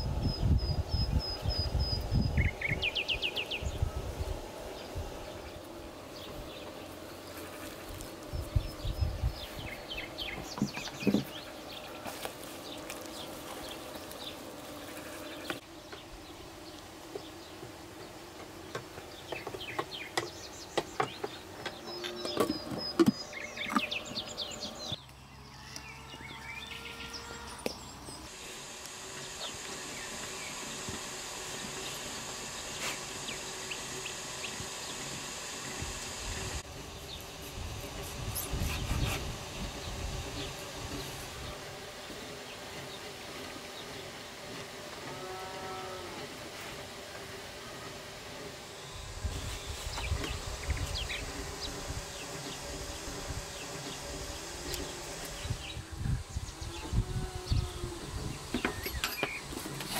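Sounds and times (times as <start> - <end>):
birds chirping: 0.0 - 28.6, 48.6 - 59.9
insects buzzing: 0.0 - 59.9
steady high hiss: 0.0 - 59.9.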